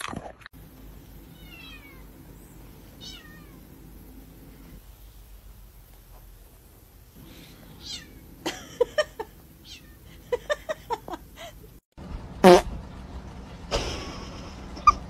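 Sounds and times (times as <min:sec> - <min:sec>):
cat meowing: 0:01.3 - 0:02.1, 0:03.0 - 0:03.6, 0:07.8 - 0:08.2, 0:09.6 - 0:10.0.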